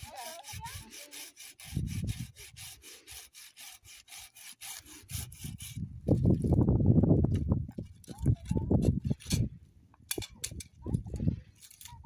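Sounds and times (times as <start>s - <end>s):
hand saw cutting wood: 0.0s - 5.8s.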